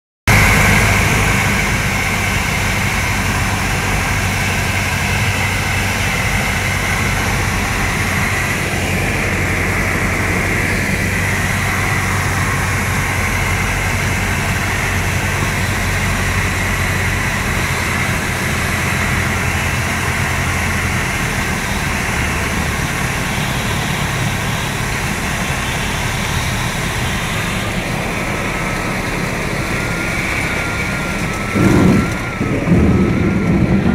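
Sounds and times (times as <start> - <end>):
plane engine and propeller droning: 0.3 - 33.9.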